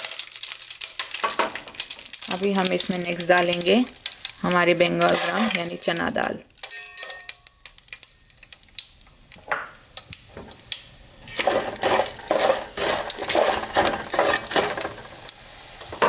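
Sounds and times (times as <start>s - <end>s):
hot oil sizzling and crackling: 0.0s - 16.0s
spoon clinking against pot: 5.5s - 7.7s.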